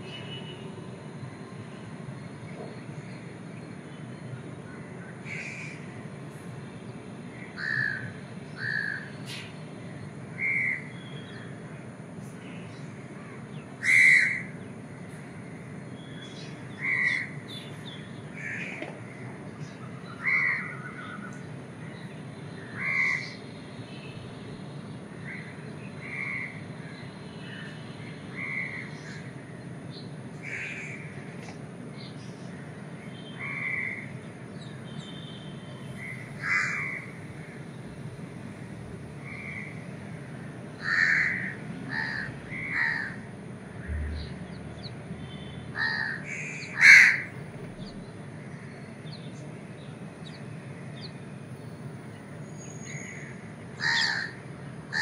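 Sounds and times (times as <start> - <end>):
crows cawing: 5.3 - 5.8, 7.6 - 8.0, 8.6 - 9.0, 13.8 - 14.5, 20.2 - 20.8, 22.8 - 23.3, 30.4 - 31.1, 36.0 - 37.6, 40.8 - 43.2, 45.7 - 47.3, 53.2 - 55.0
low background hum: 35.6 - 53.9.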